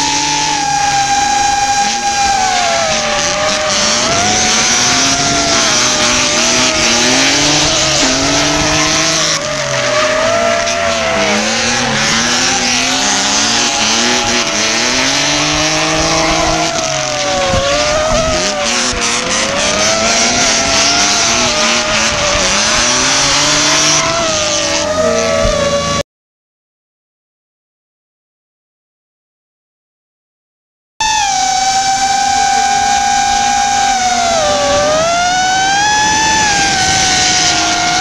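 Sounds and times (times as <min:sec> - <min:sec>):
tyres squealing: 0:00.0 - 0:25.8
car engines revving: 0:00.0 - 0:26.0, 0:31.0 - 0:38.0
drone motors whining: 0:00.0 - 0:26.0, 0:31.0 - 0:38.0.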